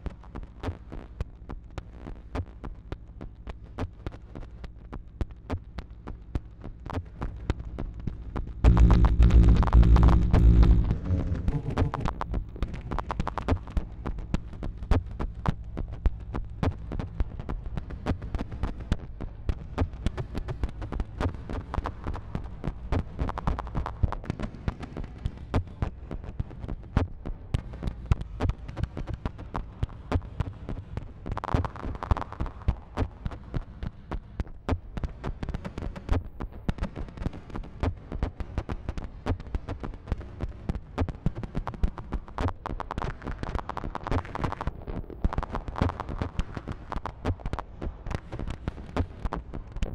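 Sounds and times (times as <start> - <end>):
fast irregular synth clicks: 0.2 - 49.9
synthesizer low drone: 8.6 - 18.6
bright synth tone: 8.7 - 12.2.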